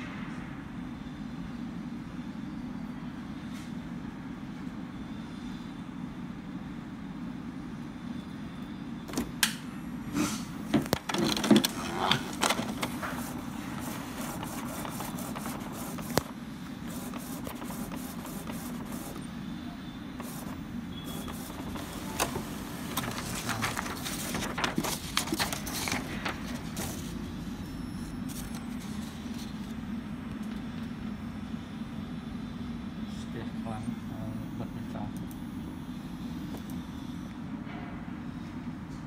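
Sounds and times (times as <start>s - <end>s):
printer humming: 0.0s - 38.9s
printer clicking and clatter: 10.7s - 19.3s, 20.2s - 27.2s.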